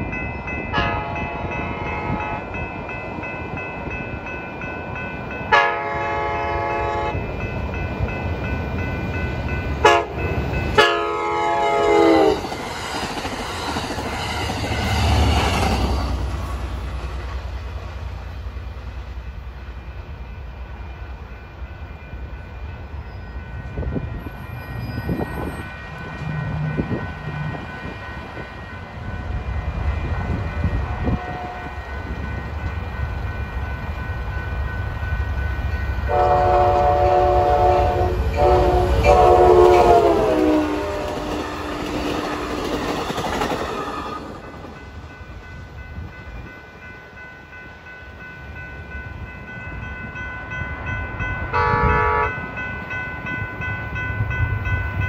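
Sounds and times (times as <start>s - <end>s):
another train approaching: 0.0s - 55.0s
train rumbling by: 0.0s - 55.0s
train horn blasts: 0.7s - 2.5s, 5.5s - 7.2s, 9.8s - 12.4s, 30.8s - 31.8s, 36.0s - 42.6s, 51.5s - 52.5s.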